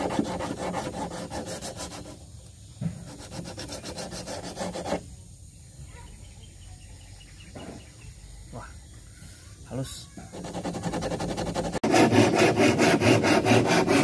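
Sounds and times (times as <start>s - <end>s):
sandpaper rasping on wood: 0.0s - 2.3s, 3.0s - 5.1s, 10.3s - 14.0s.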